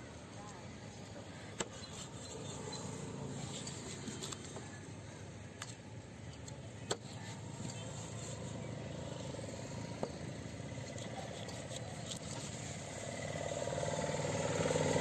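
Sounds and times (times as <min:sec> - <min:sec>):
knife scraping through flesh and bone: 0:10.8 - 0:13.0.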